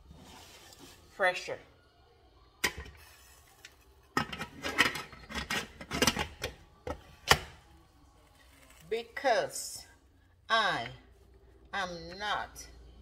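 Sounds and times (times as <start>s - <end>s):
metal lid scraping and clattering: 4.2s - 6.4s.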